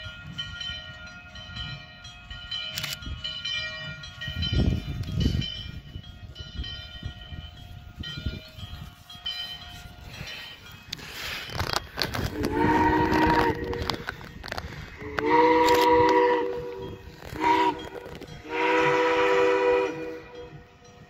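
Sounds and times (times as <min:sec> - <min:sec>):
wind on microphone: 0:00.0 - 0:21.0
steam whistle blasts: 0:12.3 - 0:14.0, 0:15.0 - 0:20.7.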